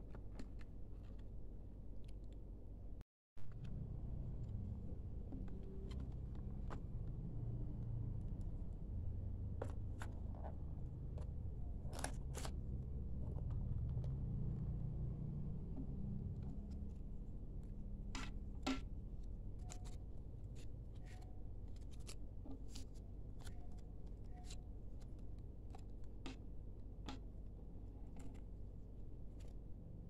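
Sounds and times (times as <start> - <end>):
low background hum: 0.0 - 30.0.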